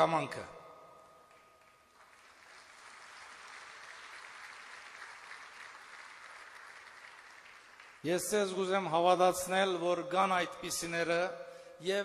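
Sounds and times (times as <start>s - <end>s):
faint audience applause: 1.3s - 8.1s.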